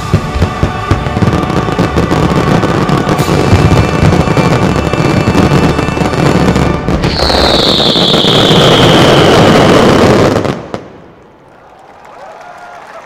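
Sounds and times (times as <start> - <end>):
loud music: 0.0 - 8.0
firework bangs and crackle: 0.0 - 11.2.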